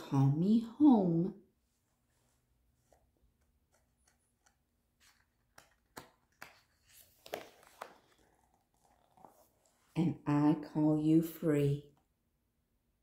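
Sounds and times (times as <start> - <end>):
paper page turning: 2.7 - 9.8.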